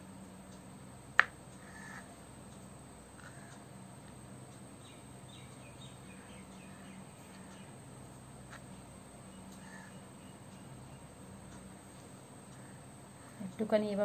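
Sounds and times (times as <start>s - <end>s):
low steady hum: 0.0s - 14.0s
faint bird chirps: 4.8s - 7.8s, 9.2s - 11.2s.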